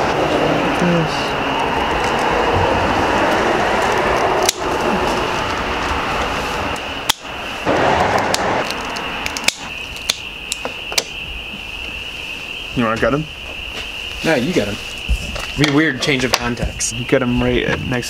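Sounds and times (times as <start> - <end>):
sharp clicks: 4.1 - 4.7, 8.1 - 11.2.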